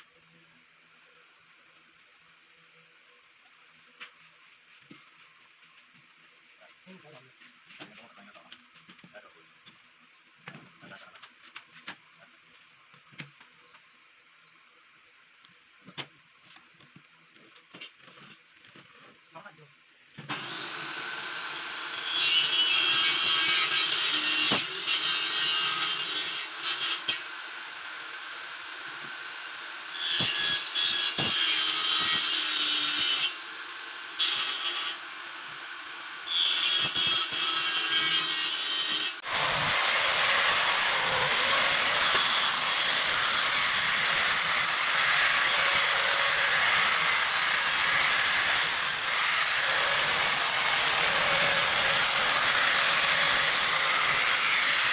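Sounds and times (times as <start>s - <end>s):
table saw cutting wood: 20.3s - 54.9s
disc sander hissing: 20.4s - 37.2s, 39.2s - 54.9s.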